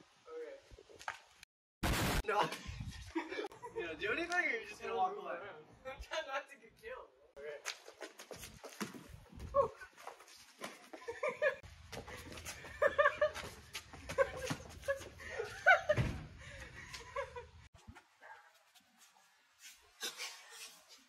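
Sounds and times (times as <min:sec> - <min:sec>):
thump: 0:15.9 - 0:16.3.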